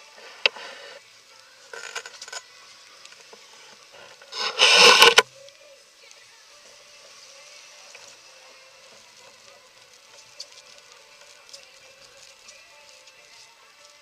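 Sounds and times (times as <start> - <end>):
jacket scraping camera: 0.2 - 1.0, 3.6 - 5.2
jacket rustling against camera: 3.3 - 5.3.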